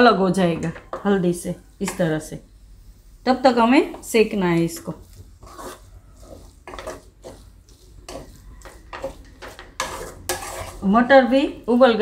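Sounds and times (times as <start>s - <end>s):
spatula scraping a pan: 1.8s - 2.3s, 3.5s - 11.9s.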